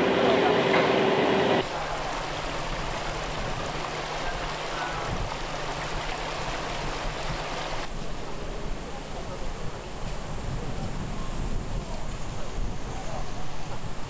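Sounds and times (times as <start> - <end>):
water flowing: 1.6 - 8.4.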